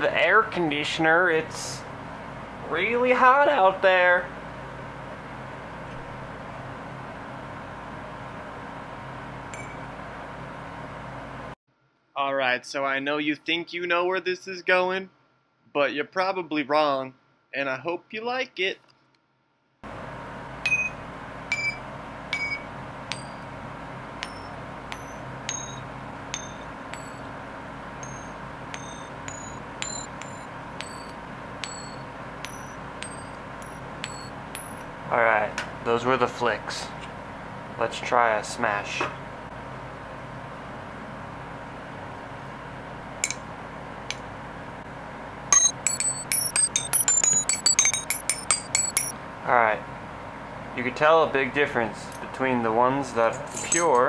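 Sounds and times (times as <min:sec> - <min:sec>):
steady background hum: 0:00.0 - 0:11.6, 0:19.8 - 0:54.0
coins flicked ringing: 0:24.2 - 0:27.3, 0:28.0 - 0:34.9, 0:45.5 - 0:49.1.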